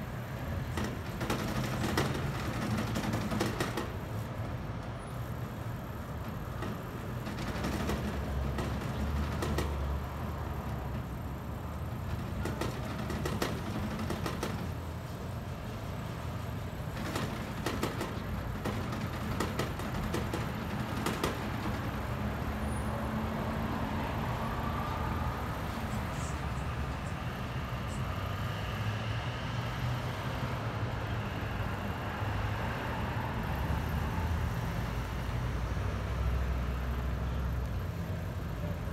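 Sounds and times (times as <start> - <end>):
street traffic rumble: 0.0 - 38.9
short clicks and knocks: 16.9 - 22.1.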